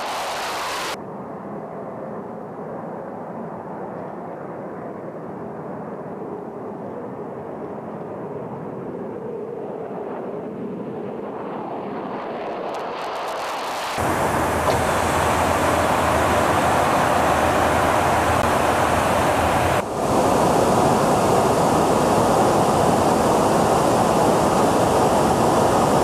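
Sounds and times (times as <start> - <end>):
jet engine running: 0.0 - 1.0, 10.9 - 26.0.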